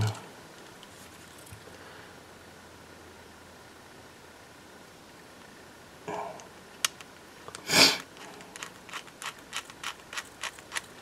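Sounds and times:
person sniffing: 7.6s - 8.4s
screwdriver clicking on screws: 8.4s - 11.0s.

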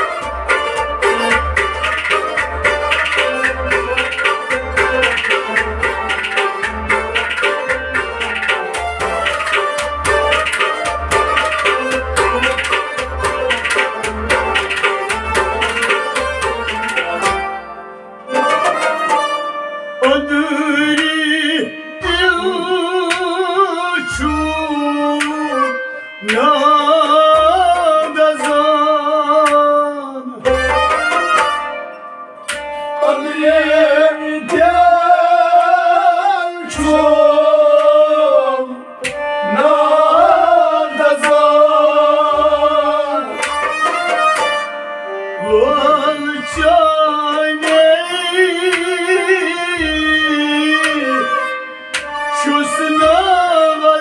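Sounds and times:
plucked rubab strumming: 0.0s - 29.8s, 30.4s - 38.0s, 39.0s - 53.5s
bowed sarangi: 0.0s - 54.0s
harmonium: 0.0s - 54.0s
men singing with vibrato: 20.0s - 30.4s, 32.9s - 43.5s, 45.4s - 51.5s, 52.4s - 54.0s.

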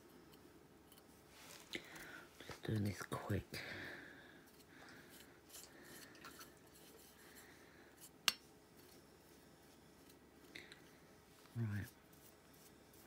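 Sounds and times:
paintbrush rubbing on metal: 4.5s - 8.2s, 8.8s - 13.0s.

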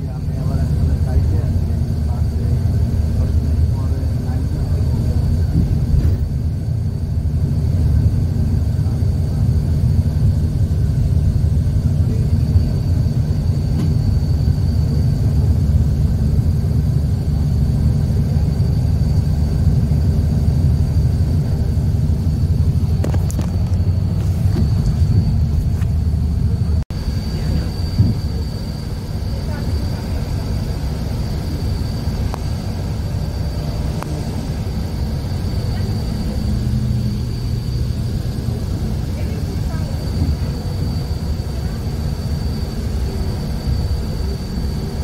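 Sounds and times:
faint high whine: 0.0s - 45.0s
road and engine rumble: 0.0s - 45.0s.

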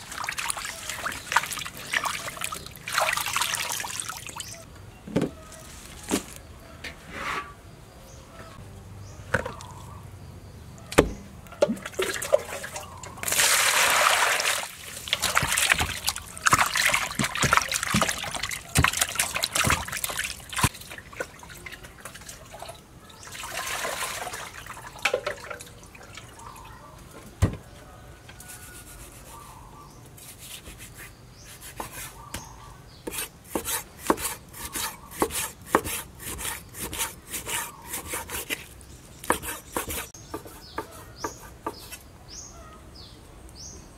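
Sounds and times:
water splashing in a colander: 0.0s - 4.6s, 11.6s - 26.4s
knife chopping on wooden board: 33.1s - 38.6s, 39.2s - 42.0s.

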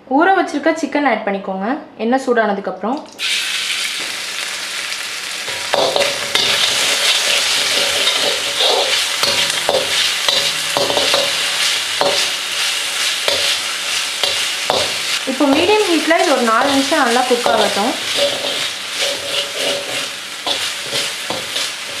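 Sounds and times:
chicken sizzling in hot oil: 3.2s - 22.0s
metal spatula scraping a wok: 5.5s - 22.0s.

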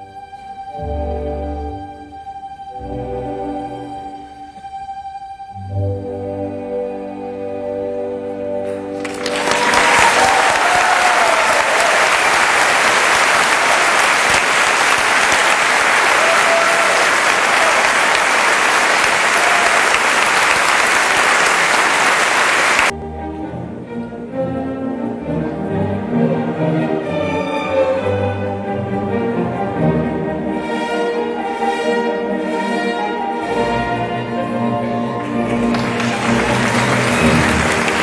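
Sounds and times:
orchestral ballet music: 0.0s - 38.0s
audience applauding: 9.0s - 22.9s, 35.0s - 38.0s.

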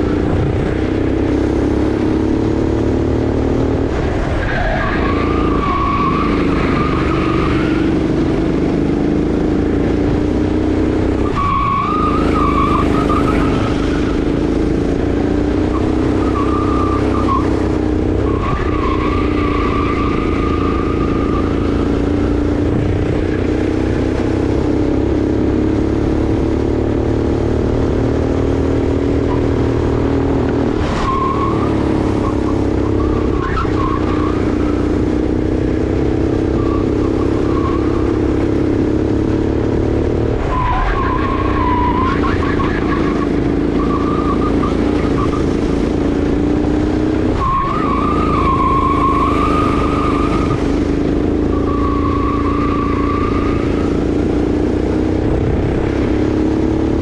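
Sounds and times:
kart engine running hard: 0.0s - 57.0s
tyres squealing: 47.3s - 54.1s.

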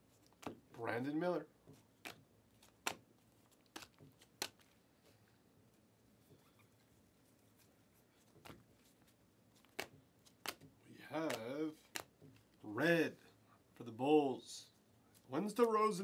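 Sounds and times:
trading cards clicking and snapping: 2.0s - 3.0s, 3.6s - 4.7s, 9.6s - 12.5s.

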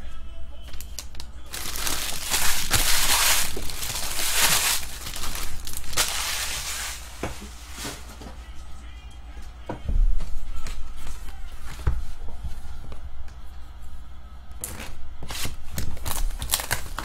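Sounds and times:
foil wrappers crinkling: 0.6s - 8.2s, 14.6s - 17.0s.

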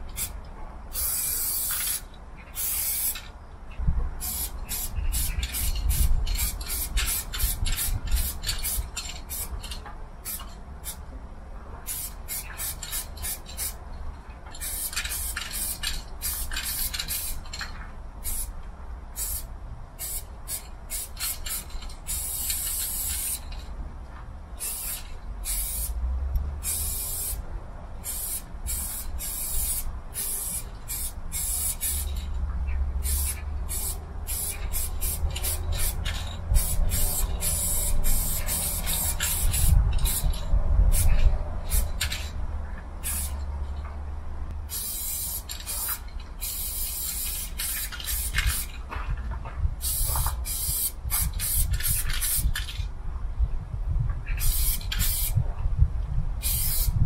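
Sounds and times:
spray paint can hissing: 0.1s - 3.3s, 4.2s - 11.0s, 11.9s - 13.8s, 14.6s - 17.6s, 18.2s - 18.5s, 19.2s - 23.6s, 24.6s - 26.0s, 26.6s - 27.4s, 28.0s - 32.3s, 33.0s - 42.3s, 43.0s - 43.4s, 44.7s - 48.8s, 49.8s - 52.8s, 54.3s - 55.4s, 56.4s - 57.0s.

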